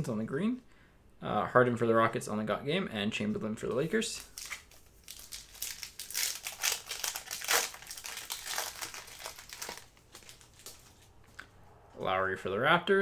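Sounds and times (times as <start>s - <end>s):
plastic foil wrapper crinkling: 4.2s - 11.2s.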